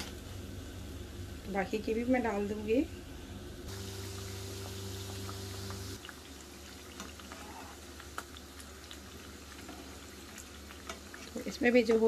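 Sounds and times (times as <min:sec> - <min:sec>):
steady low hum: 0:00.0 - 0:06.6
dough sizzling in hot oil: 0:03.7 - 0:12.0.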